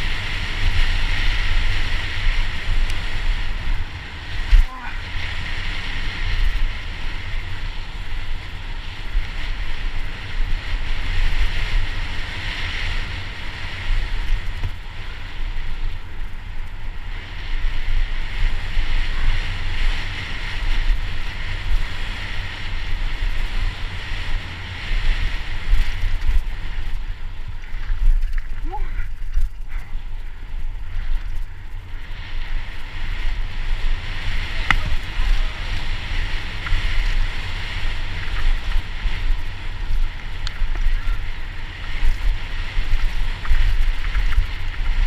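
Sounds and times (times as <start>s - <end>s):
tyres rolling on dirt trail: 0.0s - 45.0s
wind buffeting microphone: 0.0s - 45.0s.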